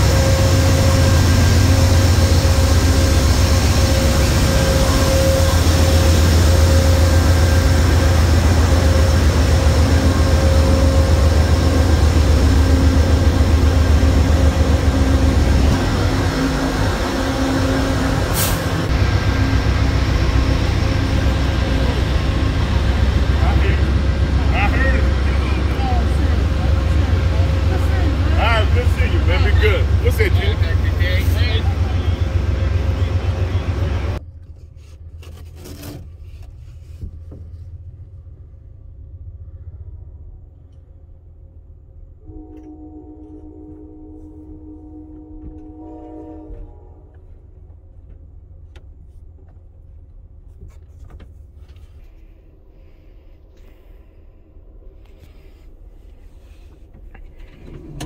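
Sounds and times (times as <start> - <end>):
passenger train rumbling: 0.0 - 58.0
scraping and rubbing noises: 34.4 - 37.8.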